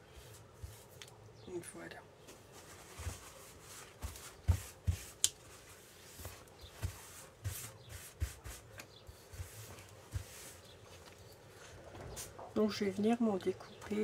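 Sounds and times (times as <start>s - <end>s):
wipe rubbing on plastic sheet: 2.6s - 11.0s.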